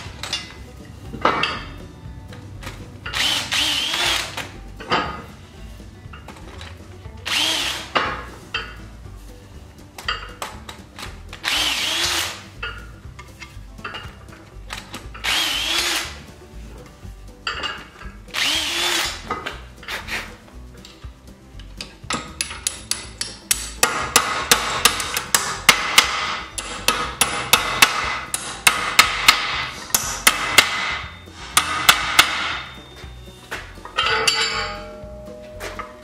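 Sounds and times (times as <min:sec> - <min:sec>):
cordless drill whining: 0:03.1 - 0:04.4, 0:07.3 - 0:08.0, 0:11.4 - 0:12.4, 0:15.2 - 0:16.1, 0:18.3 - 0:19.2.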